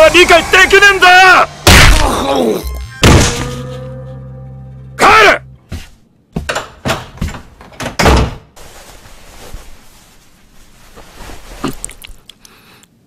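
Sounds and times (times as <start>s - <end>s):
cartoon thuds and bangs: 1.6s - 2.3s, 3.0s - 3.6s.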